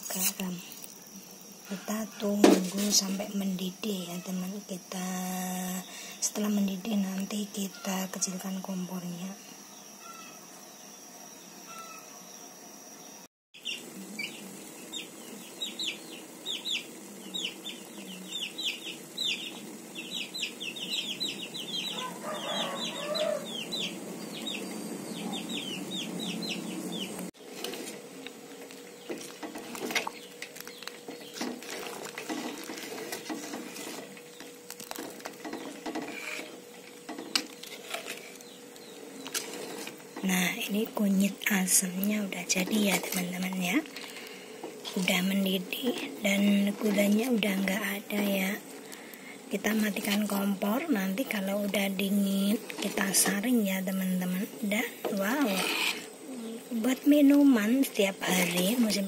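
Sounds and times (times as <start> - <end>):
chicks peeping: 13.6 - 27.2.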